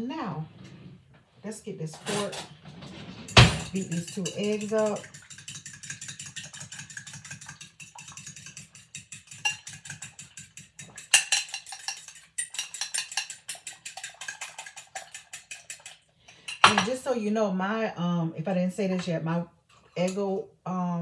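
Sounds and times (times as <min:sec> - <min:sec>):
fork beating eggs in glass bowl: 0:03.3 - 0:17.0.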